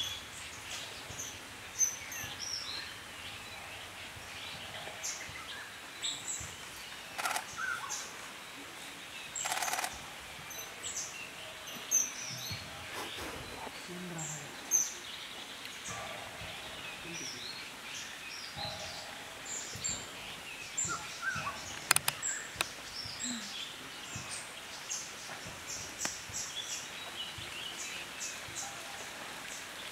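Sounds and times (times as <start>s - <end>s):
steady background hiss: 0.0s - 29.9s
sharp clicks: 7.2s - 7.5s, 9.4s - 10.0s, 21.8s - 22.7s.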